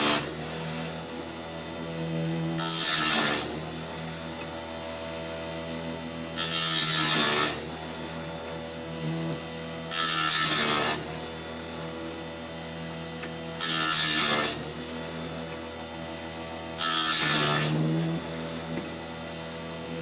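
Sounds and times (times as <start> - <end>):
grinding wheel on saw teeth: 0.0 - 1.2, 1.8 - 4.5, 6.4 - 12.1, 13.2 - 15.6, 16.8 - 19.0
sharpener motor humming: 0.0 - 20.0.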